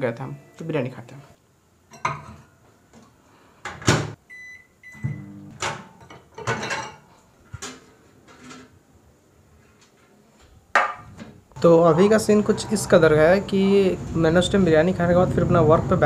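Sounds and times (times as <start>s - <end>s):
glass dishes clattering: 1.9s - 2.5s, 6.0s - 7.1s
keypad beeps: 4.3s - 5.3s.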